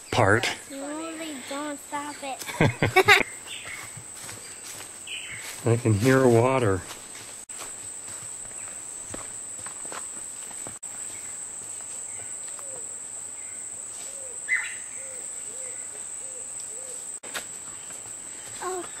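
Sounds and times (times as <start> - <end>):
crickets droning: 0.0 - 19.0
bird hooting call: 12.5 - 12.9, 14.1 - 17.1
bright bird call: 14.2 - 17.0.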